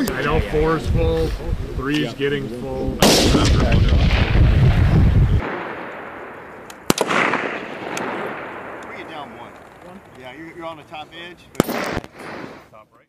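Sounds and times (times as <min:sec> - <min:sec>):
heavy rolling rumble: 0:03.0 - 0:05.6
rifle shots: 0:03.0 - 0:10.1, 0:11.6 - 0:12.6.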